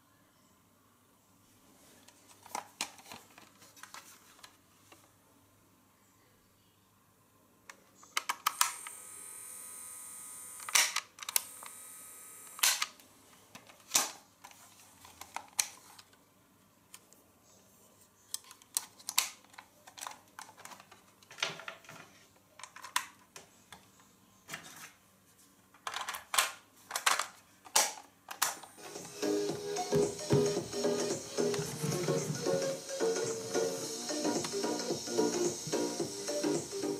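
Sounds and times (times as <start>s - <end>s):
steady hiss: 28.8s - 36.9s.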